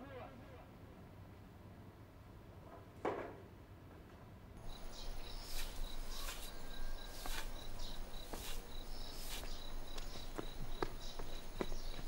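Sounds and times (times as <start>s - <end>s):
broom sweeping dirt: 4.6s - 12.0s
crickets chirping: 4.6s - 12.0s.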